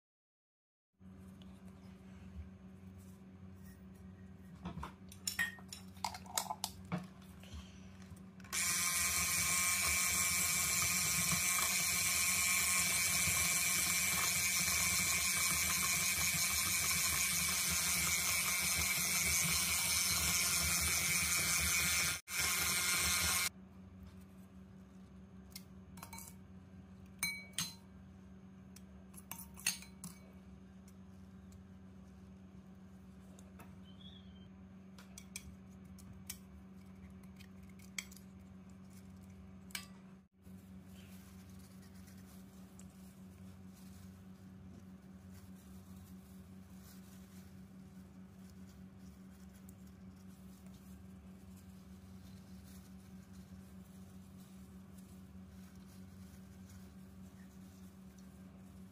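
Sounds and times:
electric mixer running: 0:08.5 - 0:23.5.

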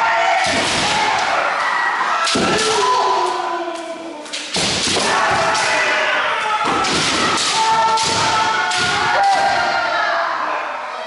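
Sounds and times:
fencers shouting: 0:00.0 - 0:11.0
bamboo sword strikes: 0:04.4 - 0:05.8, 0:06.7 - 0:09.4.

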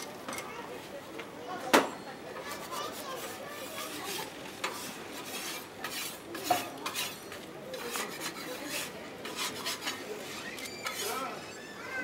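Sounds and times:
utensil scraping on metal griddle: 0:02.5 - 0:11.4.

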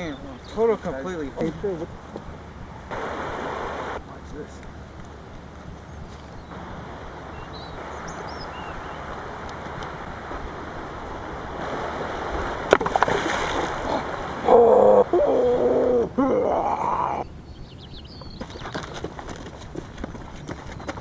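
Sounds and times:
river water running: 0:00.0 - 0:21.0
creature roaring: 0:13.8 - 0:17.2.

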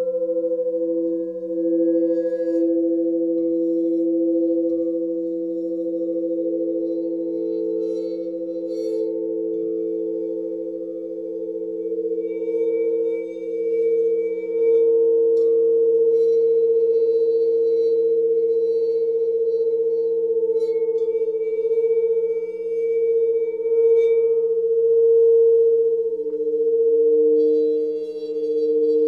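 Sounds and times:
low electronic tone: 0:23.6 - 0:29.0.

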